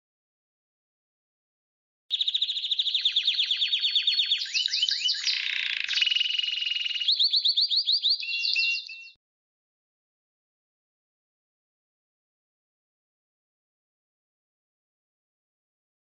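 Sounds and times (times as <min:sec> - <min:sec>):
canary song trills: 0:02.1 - 0:09.2.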